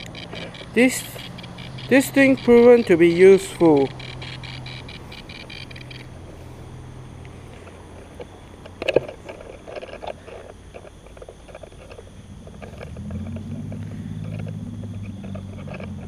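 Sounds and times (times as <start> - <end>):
low pulsing drone: 0.0 - 10.8.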